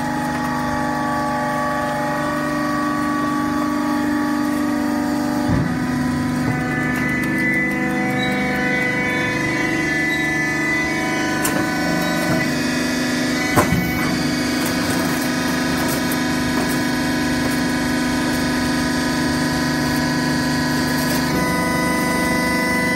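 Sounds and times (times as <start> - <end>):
hydraulic power unit humming: 0.0 - 22.9.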